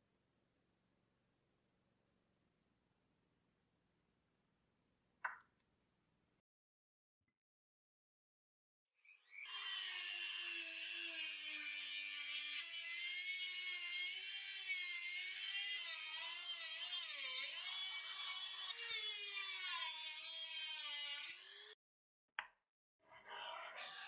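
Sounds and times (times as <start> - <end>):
rotary tool cutting metal: 9.2 - 21.8.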